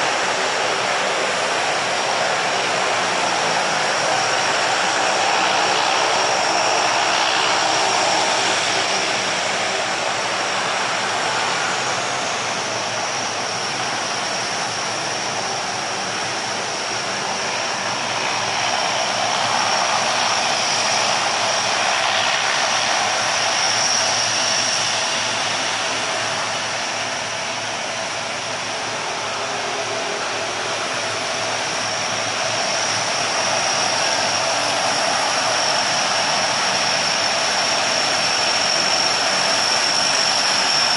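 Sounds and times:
constant high whine: 0.0s - 40.9s
turboprop engines running: 0.0s - 40.9s.

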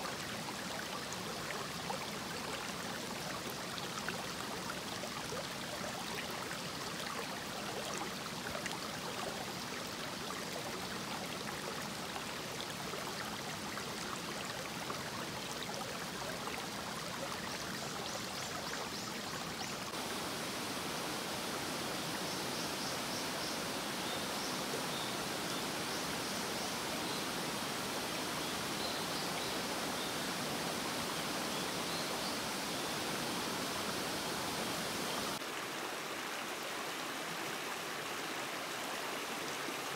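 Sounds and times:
stream rushing over stones: 19.4s - 39.9s.

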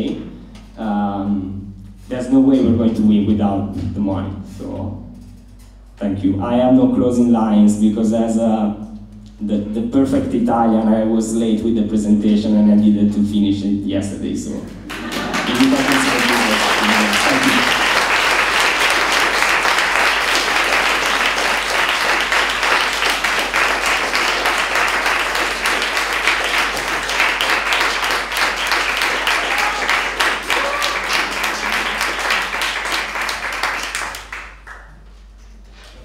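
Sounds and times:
audience applauding: 14.8s - 35.0s.

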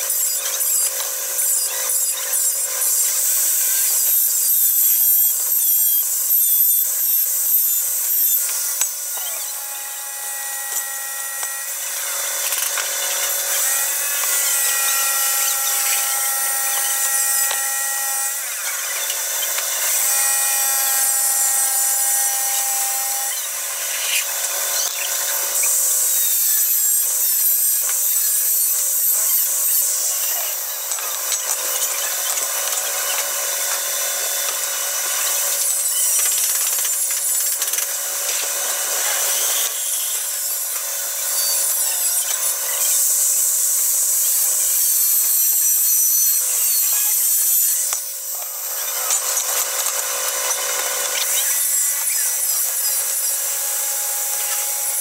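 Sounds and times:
power tool grinding metal: 0.0s - 55.0s.

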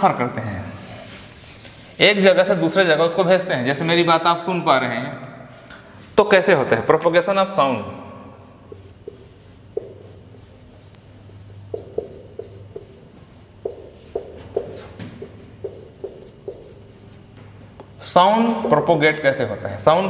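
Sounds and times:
low room hum: 0.0s - 20.0s
marker squeaking on whiteboard: 8.4s - 18.2s.

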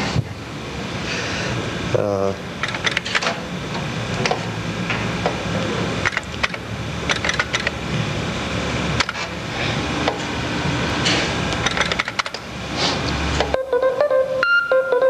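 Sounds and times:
floppy disk drive whirring: 2.5s - 14.2s
keyboard keys clicking: 2.6s - 3.1s, 6.0s - 7.7s, 11.6s - 12.4s.

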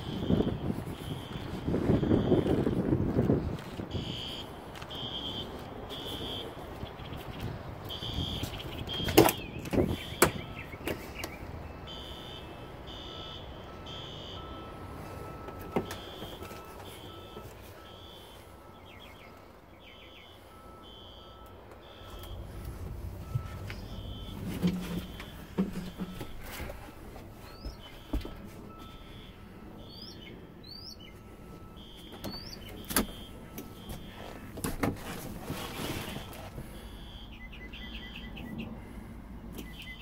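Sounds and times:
truck door knocks and clatter: 8.8s - 11.3s, 24.4s - 26.8s, 32.0s - 35.4s.

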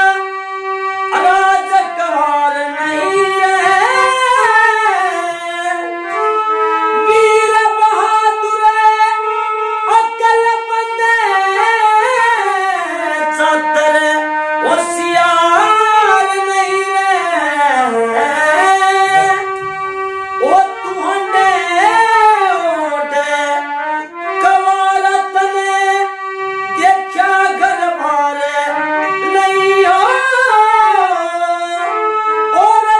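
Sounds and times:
harmonium: 0.0s - 32.9s
man singing held notes: 14.6s - 23.7s.

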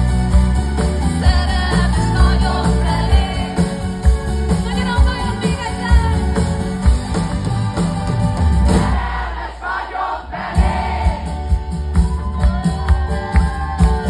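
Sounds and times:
pop-rock band playing: 0.0s - 9.5s, 10.3s - 14.0s
woman singing: 1.2s - 3.9s, 4.6s - 6.3s
drum beat: 2.2s - 14.0s.

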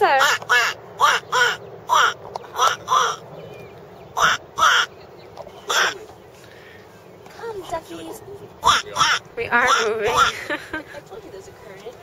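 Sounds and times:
person making quack calls: 0.1s - 3.2s, 4.2s - 4.9s, 5.7s - 6.0s, 8.6s - 10.5s.

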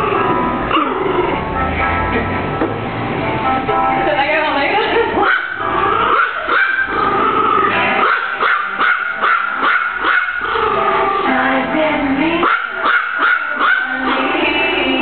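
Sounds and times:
dog whining: 0.0s - 1.4s, 5.3s - 11.4s
dog yipping: 5.2s - 11.3s, 12.4s - 14.5s.

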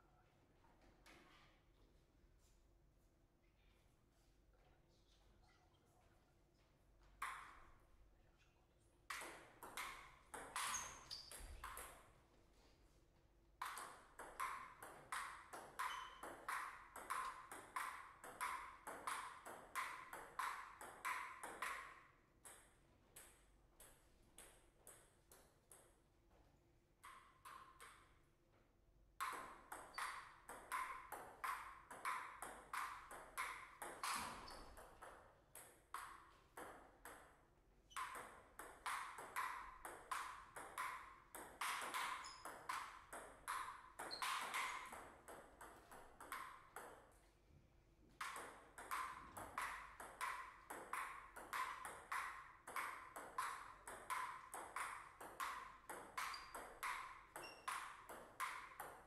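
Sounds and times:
ping pong ball clicking: 7.2s - 7.7s, 9.1s - 12.1s, 13.6s - 26.0s, 27.0s - 28.2s, 29.2s - 47.2s, 48.2s - 59.0s.

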